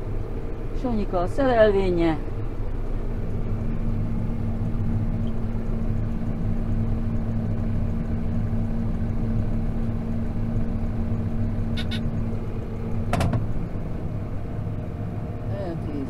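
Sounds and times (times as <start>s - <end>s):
tractor engine running: 0.0s - 16.0s
short high beeps: 11.8s - 12.0s.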